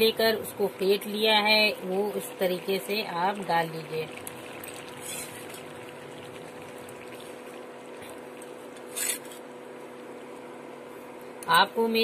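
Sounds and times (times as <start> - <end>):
faint steady hum: 0.0 - 12.0
curry simmering bubbling: 1.7 - 8.9.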